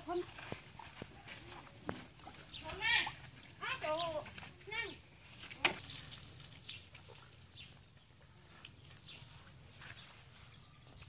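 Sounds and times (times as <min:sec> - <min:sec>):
water splashing: 0:05.2 - 0:07.5.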